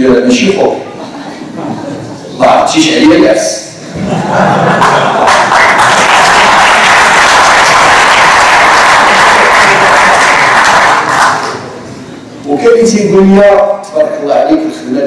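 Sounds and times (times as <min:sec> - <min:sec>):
audience applauding: 0:04.6 - 0:11.8.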